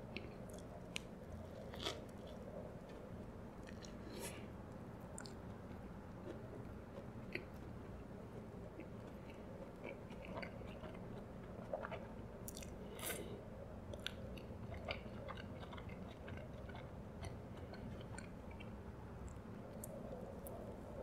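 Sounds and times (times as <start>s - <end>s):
chewing with wet mouth smacks: 5.0s - 13.2s, 13.9s - 20.6s.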